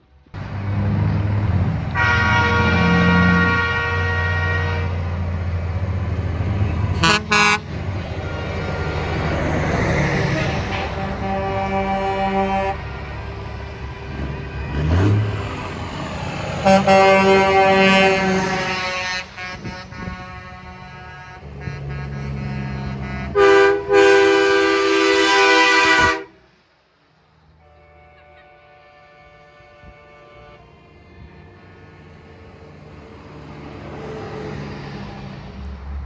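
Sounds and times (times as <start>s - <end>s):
truck engine rumble: 0.0s - 36.0s
truck air horn blasts: 1.9s - 5.2s, 6.9s - 9.1s, 10.3s - 13.0s, 16.6s - 26.5s, 27.6s - 32.0s.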